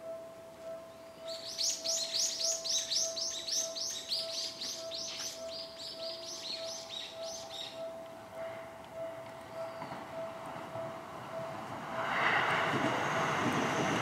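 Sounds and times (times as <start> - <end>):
level crossing alarm ringing: 0.0 - 12.2
bird chirping: 0.1 - 8.1, 9.0 - 10.5.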